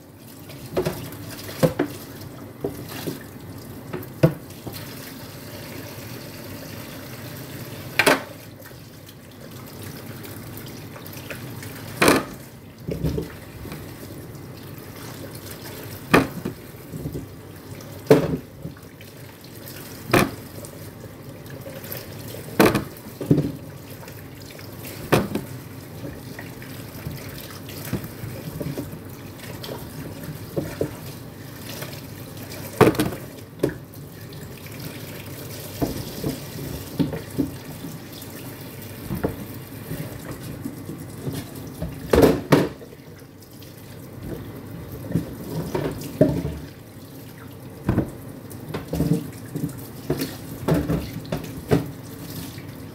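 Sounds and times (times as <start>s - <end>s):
tap running into sink: 7.9s - 8.4s, 16.1s - 17.3s, 35.7s - 38.0s, 39.0s - 42.9s, 45.1s - 46.8s, 47.8s - 52.0s.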